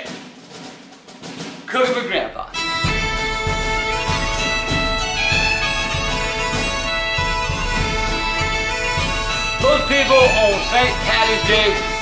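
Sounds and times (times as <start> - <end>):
drum beat: 0.0 - 12.0
bagpipe tune with drone: 2.6 - 12.0.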